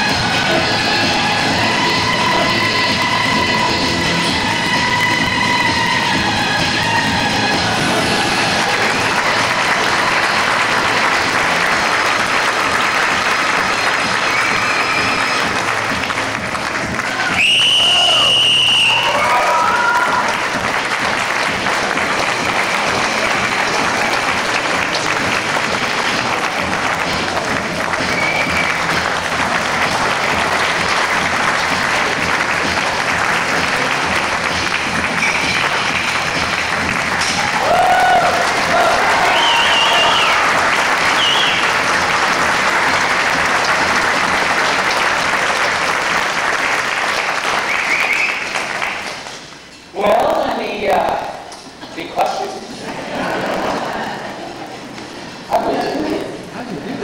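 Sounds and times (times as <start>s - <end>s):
audience applauding: 0.0s - 57.0s
short high calls from crowd: 14.2s - 15.7s, 17.1s - 20.4s, 37.4s - 40.5s, 41.1s - 41.8s.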